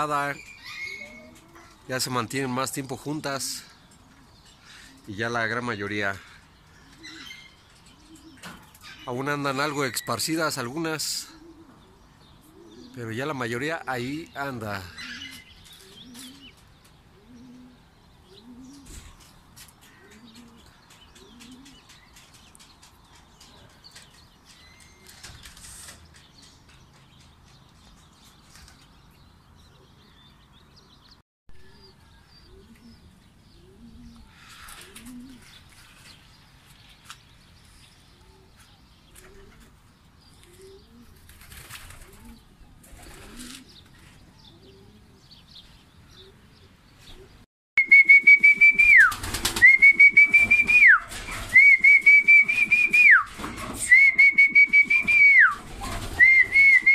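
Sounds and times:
pigeons cooing: 0:00.0 - 0:01.9, 0:03.2 - 0:22.2, 0:30.8 - 0:36.2, 0:38.1 - 0:56.9
wings flapping: 0:18.8 - 0:29.0, 0:41.0 - 0:44.1, 0:48.1 - 0:56.9.

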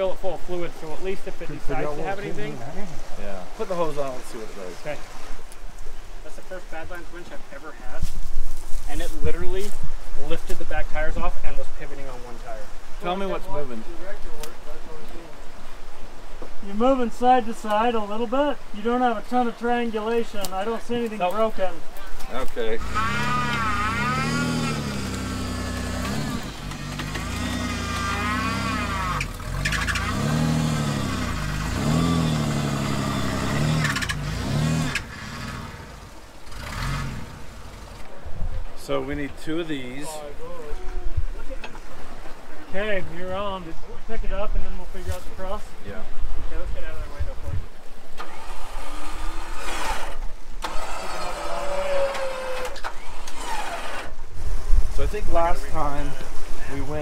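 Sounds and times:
buggy engine revving: 0:22.6 - 0:38.2, 0:48.2 - 0:55.6
winch whining under load: 0:22.8 - 0:34.2, 0:48.2 - 0:54.2.

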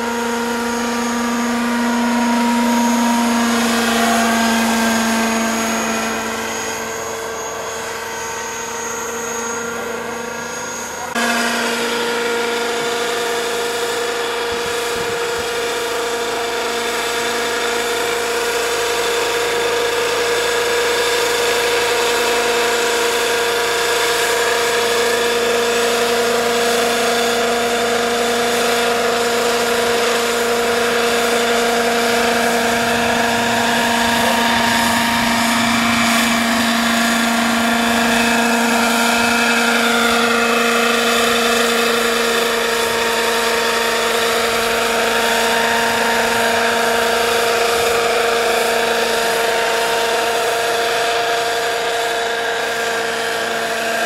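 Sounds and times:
model helicopter engine and rotors: 0:00.0 - 0:54.0
higher tone bending down: 0:24.3 - 0:49.0.

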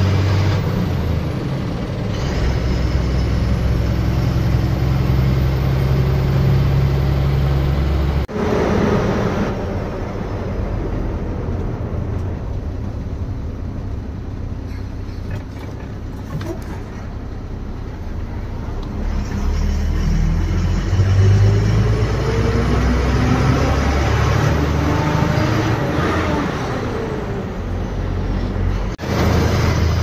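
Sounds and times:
diesel bus engine: 0:00.0 - 0:30.0
road noise: 0:00.0 - 0:30.0.

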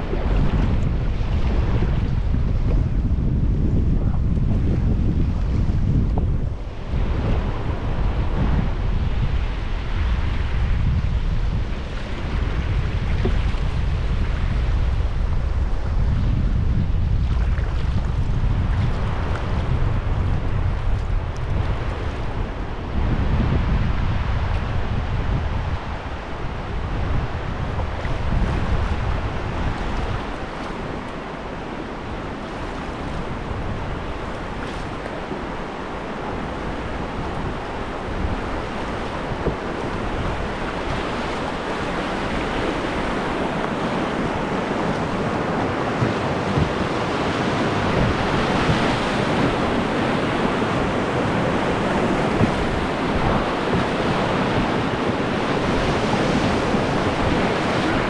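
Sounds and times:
wind buffeting microphone: 0:00.0 - 0:58.0
whitewater rapids rushing: 0:30.4 - 0:58.0.

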